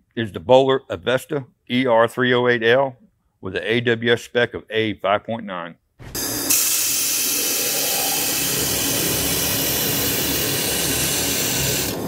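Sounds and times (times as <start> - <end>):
laser welder hissing and crackling: 6.0 - 12.0.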